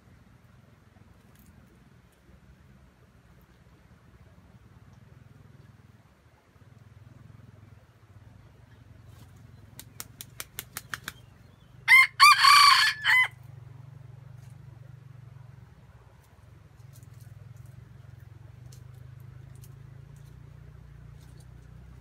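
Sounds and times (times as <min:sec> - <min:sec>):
rooster wings beating: 0:09.1 - 0:11.3
rooster crowing: 0:11.8 - 0:13.4.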